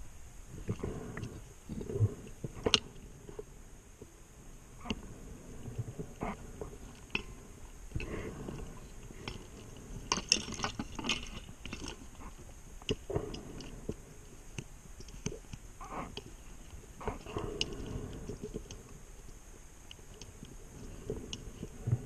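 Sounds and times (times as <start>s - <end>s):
scuba regulator breathing: 7.2s - 10.1s, 17.0s - 19.1s.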